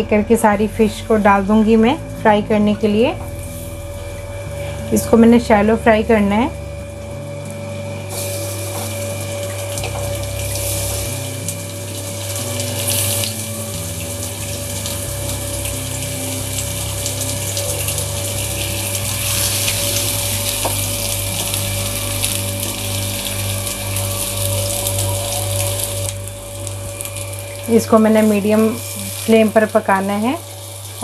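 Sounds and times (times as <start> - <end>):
low hum: 0.0 - 31.0
fish sizzling in oil: 6.8 - 31.0.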